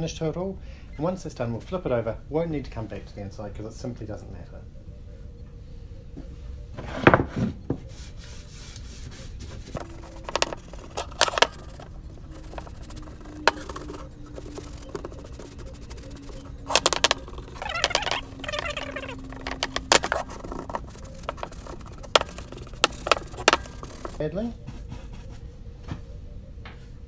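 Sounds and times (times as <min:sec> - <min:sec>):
paintbrush brushing over wood: 0:07.9 - 0:25.3
brush tapping metal can: 0:09.3 - 0:24.2.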